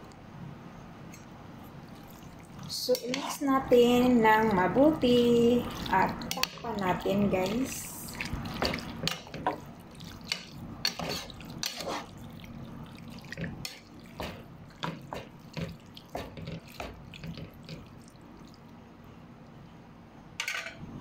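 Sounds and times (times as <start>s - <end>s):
wet sloshing and squelching: 1.7s - 2.8s, 4.2s - 18.8s.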